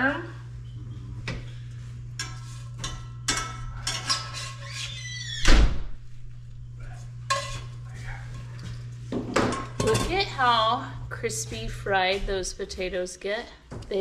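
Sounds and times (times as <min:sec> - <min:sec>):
low steady hum: 0:00.0 - 0:14.0
metal tongs clinking on skillet: 0:07.3 - 0:07.7.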